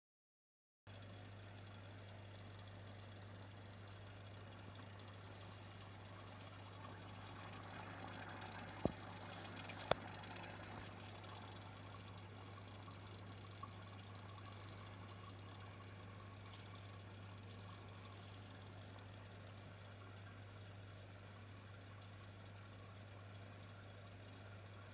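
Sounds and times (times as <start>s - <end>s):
faint electrical hum: 0.9s - 24.9s.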